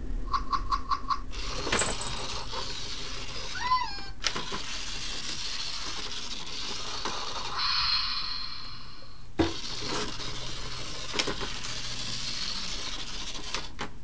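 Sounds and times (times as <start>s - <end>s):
high whirring hiss: 4.6s - 13.7s.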